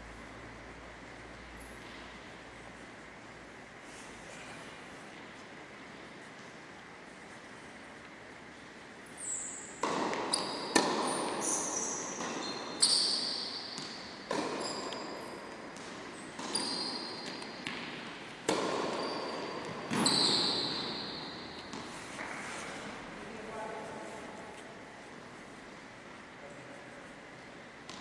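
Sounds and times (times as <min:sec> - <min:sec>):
shoe squeaks: 0:09.2 - 0:15.5, 0:16.2 - 0:17.8, 0:18.8 - 0:22.2
ball bouncing: 0:09.8 - 0:22.3
racket hitting tennis ball: 0:09.8 - 0:22.4.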